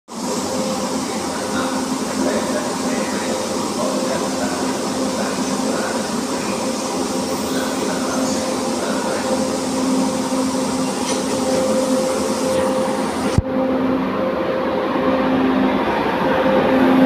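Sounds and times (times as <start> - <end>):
train equipment humming and whining: 0.1 - 17.0.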